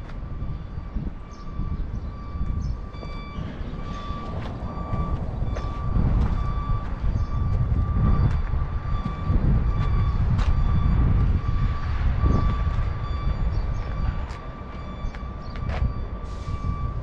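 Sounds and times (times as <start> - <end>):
heavy machinery rumbling: 0.0 - 17.0
high-pitched beeping tone: 0.2 - 17.0.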